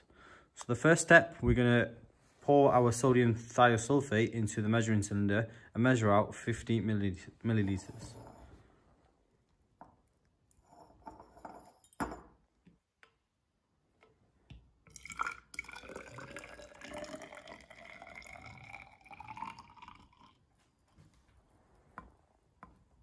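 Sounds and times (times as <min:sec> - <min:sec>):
liquid pouring into cylinder: 0:14.9 - 0:20.7.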